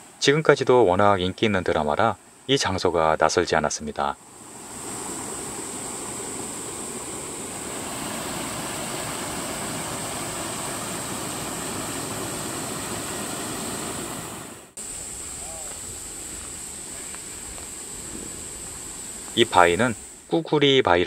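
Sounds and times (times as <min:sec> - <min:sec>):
stream rushing over rocks: 0:04.6 - 0:14.8.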